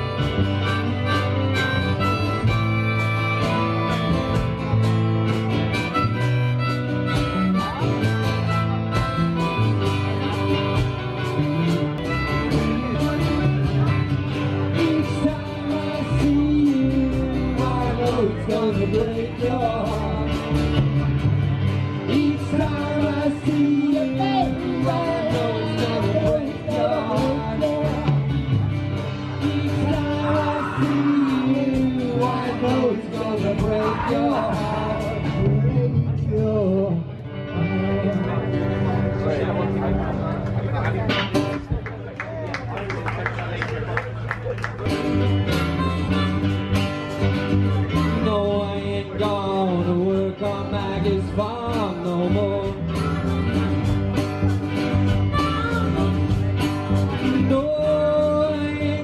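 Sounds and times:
harmonica: 0.0 - 14.6, 45.2 - 47.3
bass guitar: 0.0 - 59.0
electric guitar: 0.0 - 59.0.

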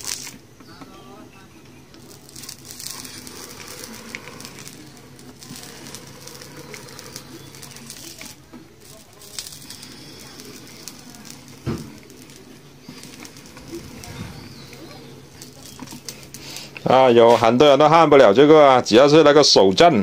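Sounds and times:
wire sizzling in wax: 0.0 - 18.8.

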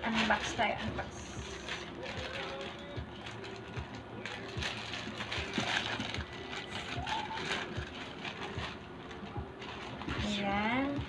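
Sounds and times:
plastic bag tearing open: 0.0 - 11.0
plastic crinkling: 0.0 - 11.0.

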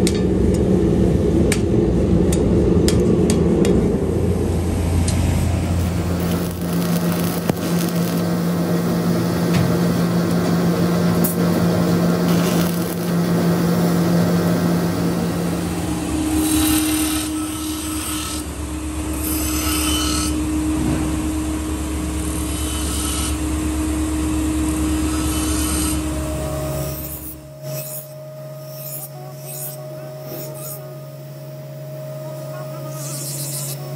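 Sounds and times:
welder hum: 0.0 - 33.9
bench grinder running: 4.8 - 31.0, 32.3 - 33.9
welding arc crackling: 5.0 - 20.4
steel hissing against grinding wheel: 16.3 - 18.5, 19.2 - 20.4, 22.2 - 23.4, 24.9 - 26.2, 26.8 - 30.8, 32.9 - 33.9.

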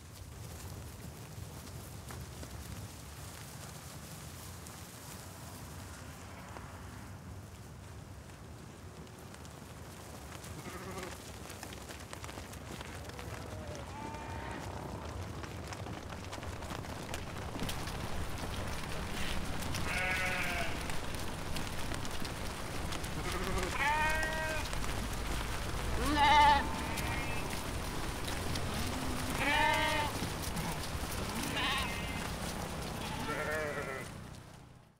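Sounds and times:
steady low background noise: 0.0 - 34.9
sheep bleating: 10.6 - 11.2, 13.2 - 14.7, 19.1 - 21.0, 23.1 - 24.7, 25.9 - 27.6, 28.6 - 34.2.

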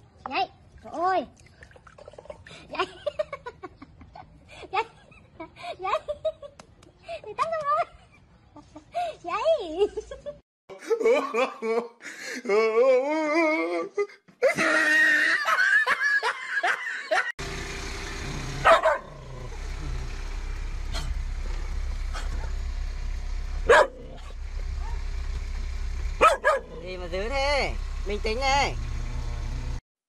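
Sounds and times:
low steady cab hum: 17.4 - 29.0
dog barking sharply: 18.6 - 19.2, 23.7 - 25.0, 26.2 - 26.8.

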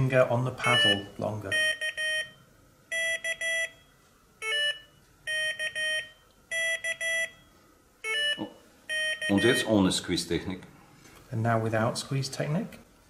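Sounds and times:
speaker beeping morse code: 0.6 - 3.8, 4.4 - 9.8.

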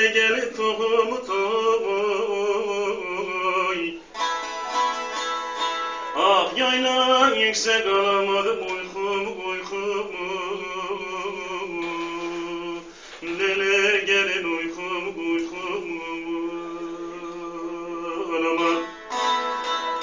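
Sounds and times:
long-necked lute folk melody: 1.0 - 9.7, 16.3 - 20.0.

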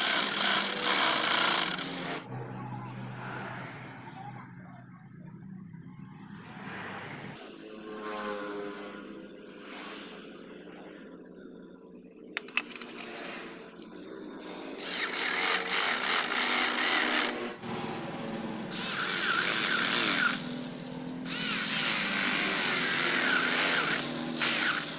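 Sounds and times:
electric drill boring into wood: 0.0 - 2.2, 14.8 - 17.6, 18.7 - 24.9.

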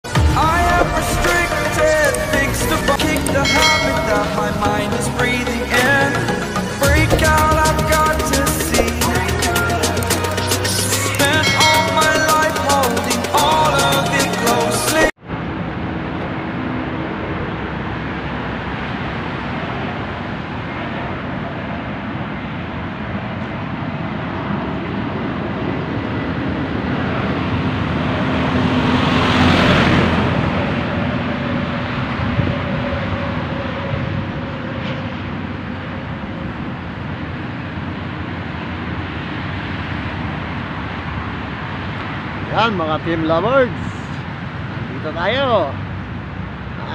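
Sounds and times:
road traffic noise: 0.0 - 46.9
vehicle passing: 24.4 - 34.3.

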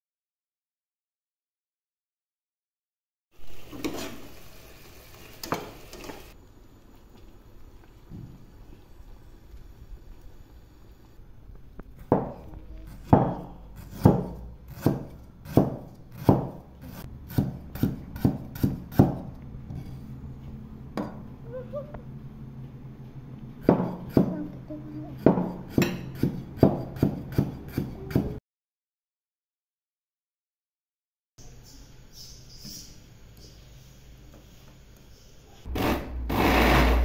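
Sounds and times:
cleaver chopping on wooden board: 13.1 - 16.6.

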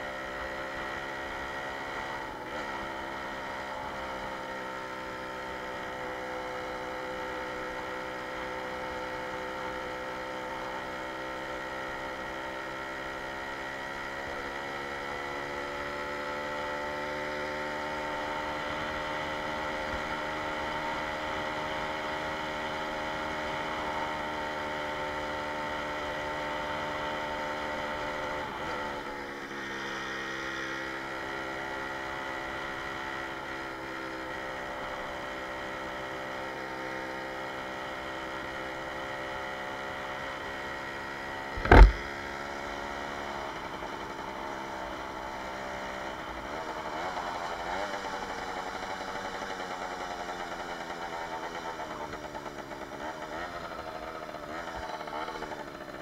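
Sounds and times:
moped engine running: 0.0 - 56.0
sharp knock: 41.6 - 42.1.

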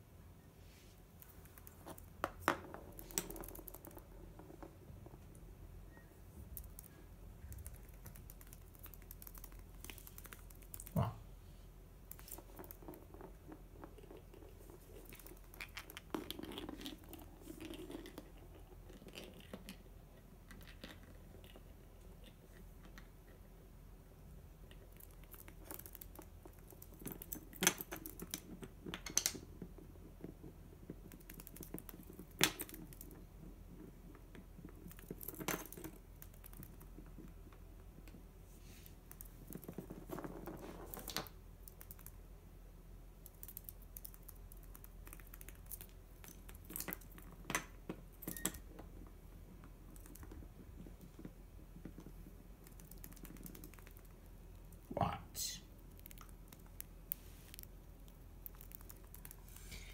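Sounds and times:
soft rustle: 0.5 - 2.2, 36.0 - 41.4, 55.7 - 59.9.

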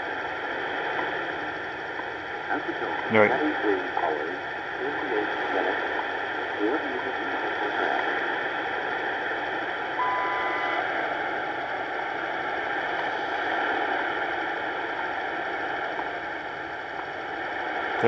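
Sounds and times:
radio static hiss: 0.0 - 18.0
high beep: 10.0 - 10.8.

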